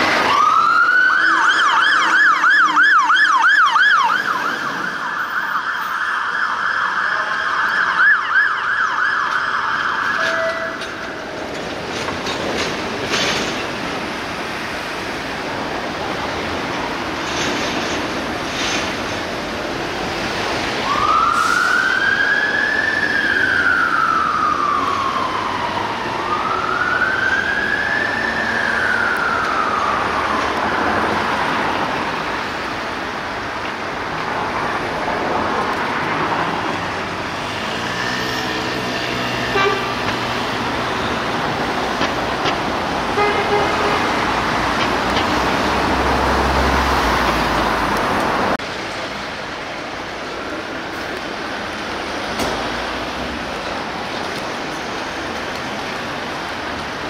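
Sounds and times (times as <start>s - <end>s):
fire engine siren wailing: 0.0s - 11.6s, 20.0s - 34.8s, 35.6s - 48.6s
city traffic engines: 0.0s - 57.0s.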